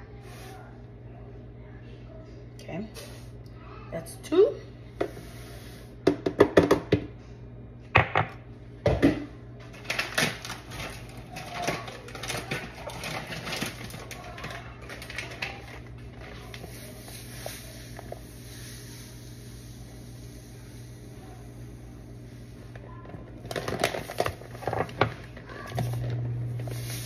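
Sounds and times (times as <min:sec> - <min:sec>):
paper bag crinkling: 0:09.7 - 0:17.2, 0:23.4 - 0:27.0.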